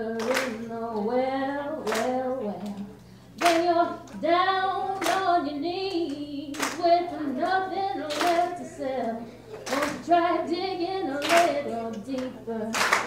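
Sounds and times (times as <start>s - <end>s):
clapped beat: 0.2s - 0.6s, 1.8s - 2.8s, 3.4s - 3.8s, 5.0s - 5.3s, 6.0s - 7.0s, 8.1s - 8.6s, 9.6s - 10.1s, 11.2s - 13.0s.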